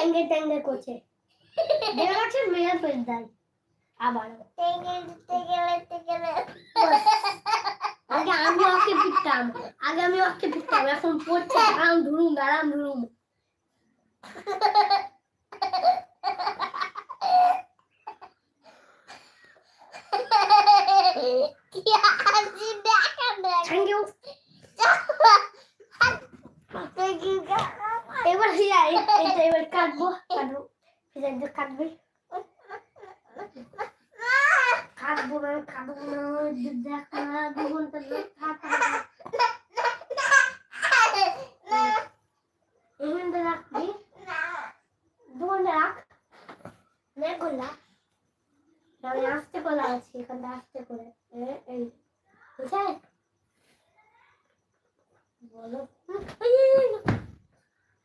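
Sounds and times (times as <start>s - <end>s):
child laughing: 5.6s - 9.7s, 10.3s - 11.9s, 14.3s - 18.4s, 19.8s - 23.6s, 24.2s - 26.3s, 27.0s - 29.6s
toddler giggling: 6.1s - 9.7s, 14.2s - 18.4s, 19.8s - 23.5s, 37.1s - 42.0s
faint clicks and rustles: 25.7s - 28.2s.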